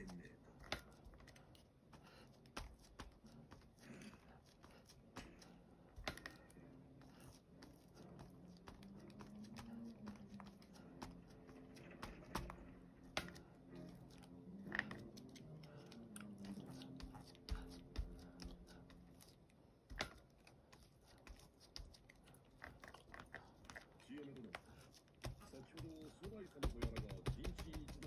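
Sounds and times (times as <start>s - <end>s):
foam dauber tapping on paper: 7.7s - 13.4s, 24.5s - 28.0s.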